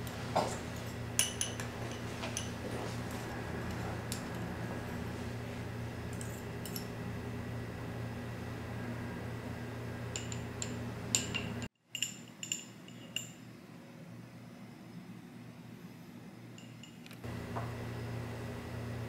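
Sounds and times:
steady low hum: 0.0 - 19.0
tableware clinking: 0.4 - 2.9, 6.1 - 6.9, 10.1 - 13.4, 16.6 - 17.1.

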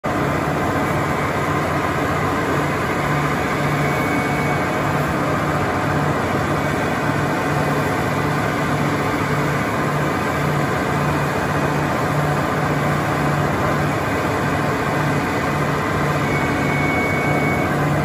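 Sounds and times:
bulldozer diesel engine running: 0.0 - 18.0.

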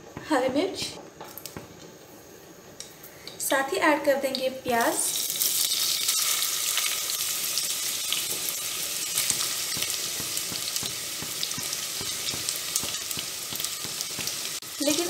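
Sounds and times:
onions sizzling in hot oil: 3.4 - 15.0.

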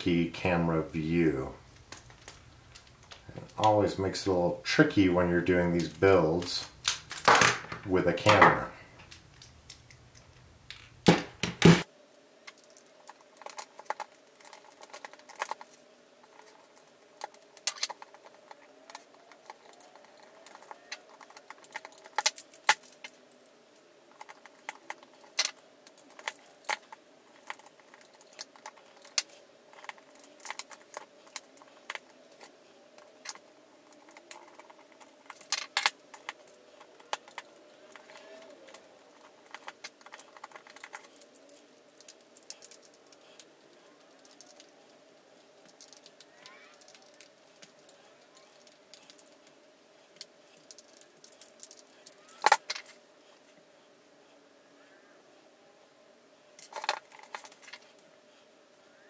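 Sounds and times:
small parts clicking: 12.4 - 53.0, 56.6 - 58.0.

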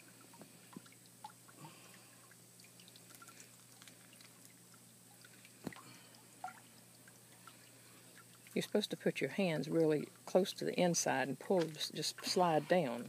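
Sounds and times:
wet handling sounds: 11.4 - 12.6.

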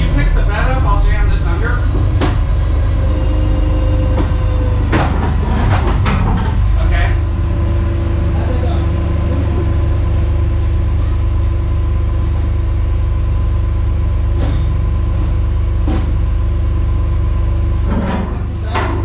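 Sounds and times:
truck engine idling: 0.0 - 19.0.

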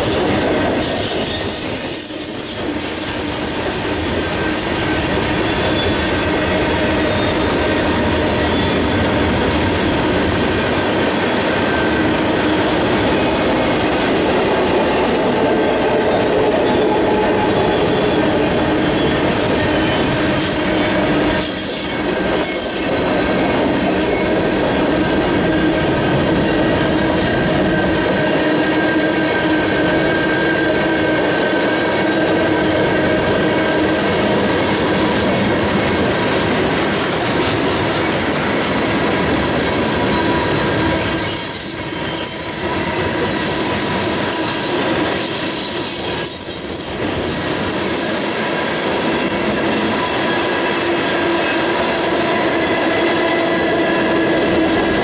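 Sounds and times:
train wheels rumbling on rails: 0.0 - 55.0
wheel squeal: 5.4 - 7.7, 51.7 - 52.4.

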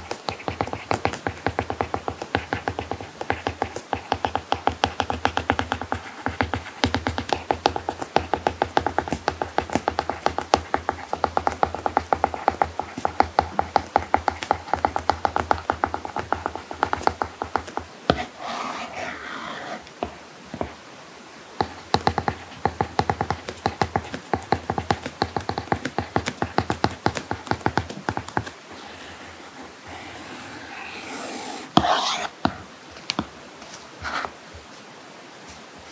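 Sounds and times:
stylus tapping and scratching screen: 0.0 - 20.8, 21.6 - 28.6, 30.7 - 34.4.

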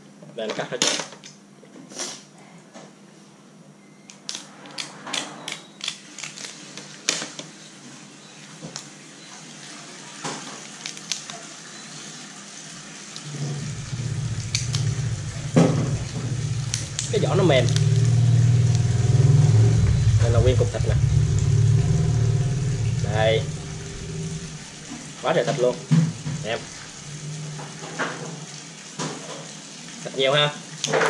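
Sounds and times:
crab shell cracking and snipping: 5.8 - 6.6, 10.7 - 11.4
low steady engine hum: 13.3 - 27.8.

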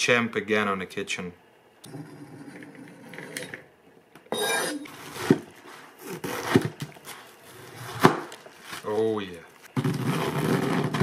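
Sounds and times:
knife blade scraping: 4.3 - 5.2.

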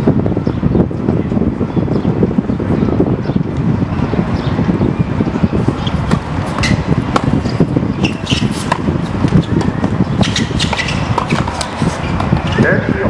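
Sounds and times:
steady low rumble: 0.0 - 13.0
tennis ball struck by rackets: 6.1 - 12.6.

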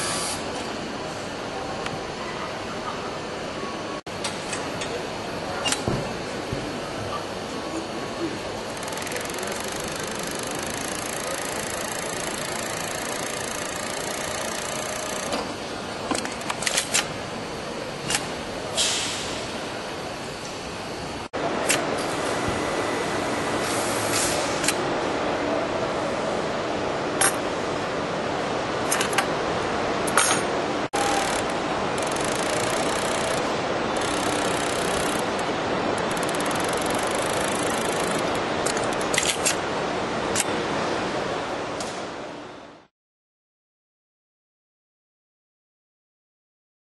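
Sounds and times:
sewing machine whirring: 8.6 - 15.4, 31.0 - 39.2
brief air hiss: 18.8 - 19.4
sharp mechanical clicks: 31.0 - 35.4, 36.0 - 39.6.

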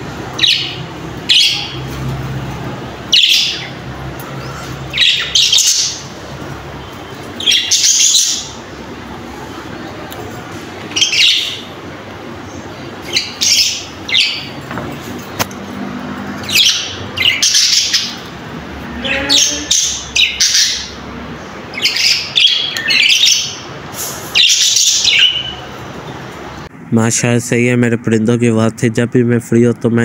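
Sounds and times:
budgerigars chirping and squawking: 0.0 - 2.0, 3.1 - 8.7, 10.9 - 11.8, 12.5 - 14.7, 16.3 - 18.3, 18.9 - 25.8.

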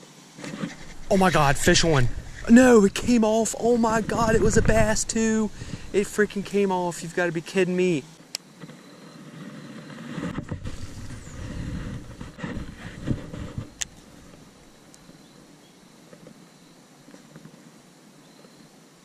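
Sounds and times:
wind rumbling on microphone: 0.6 - 7.0, 10.0 - 14.6.

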